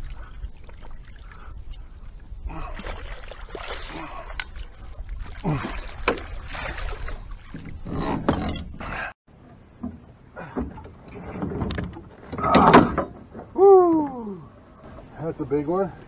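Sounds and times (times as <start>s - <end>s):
water splashing from thrashing fish: 2.5s - 7.9s.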